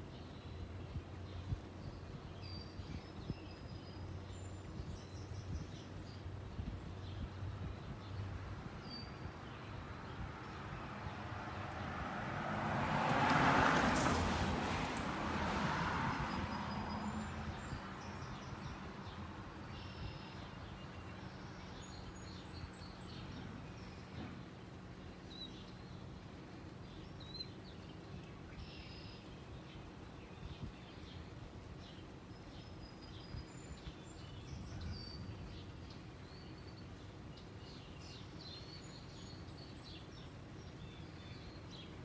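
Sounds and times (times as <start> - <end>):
car passing: 9.4 - 19.6
birds chirping: 16.1 - 42.0.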